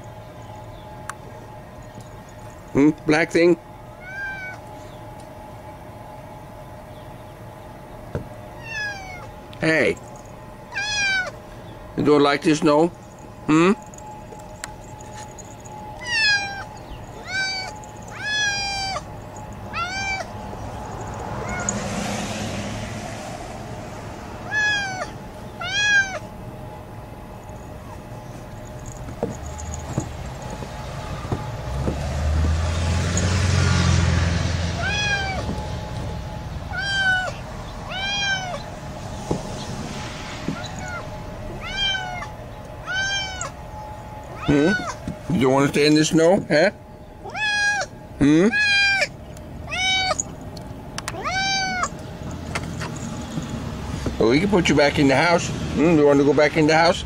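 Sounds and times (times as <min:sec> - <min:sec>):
cat meowing: 0:04.0 - 0:04.6, 0:08.6 - 0:09.3, 0:10.7 - 0:11.4, 0:16.0 - 0:19.1, 0:19.7 - 0:20.3, 0:21.3 - 0:21.8, 0:24.4 - 0:26.3, 0:34.8 - 0:35.5, 0:36.7 - 0:38.7, 0:40.6 - 0:43.6, 0:44.3 - 0:45.0, 0:47.2 - 0:49.1, 0:49.7 - 0:50.3, 0:51.1 - 0:52.0
rushing noise: 0:28.6 - 0:44.4.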